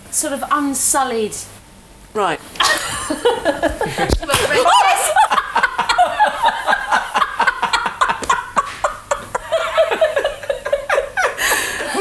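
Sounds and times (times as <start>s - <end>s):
hearty laughter: 2.6s - 12.0s.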